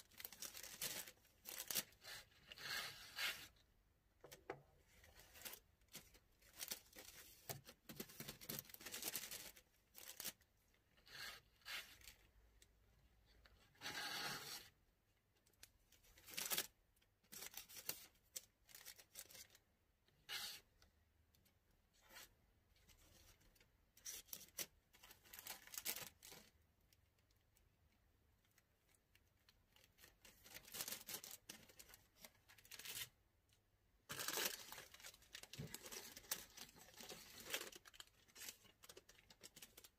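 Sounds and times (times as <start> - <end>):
plastic bags crinkling: 0.0 - 2.0, 5.3 - 10.4, 34.1 - 39.9.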